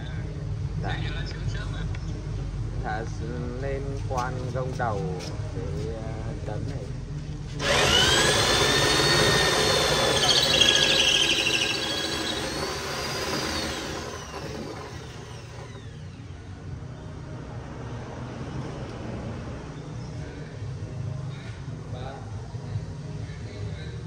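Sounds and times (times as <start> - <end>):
power tool whining: 7.6 - 16.2.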